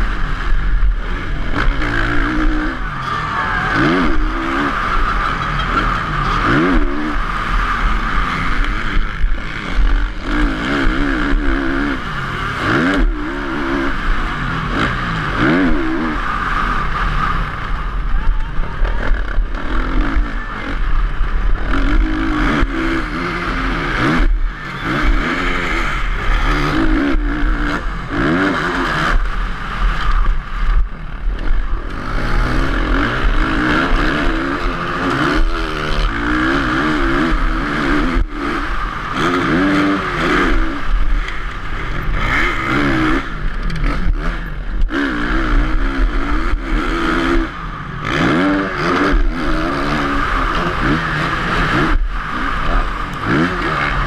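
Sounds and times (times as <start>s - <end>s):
motocross bike engine revving: 0.0s - 54.0s.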